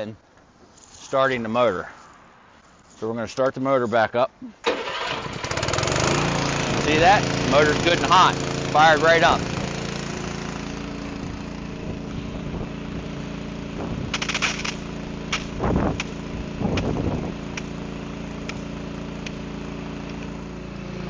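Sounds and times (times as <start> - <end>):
small pump engine running: 4.6 - 21.0
sharp clicks: 18.4 - 19.4.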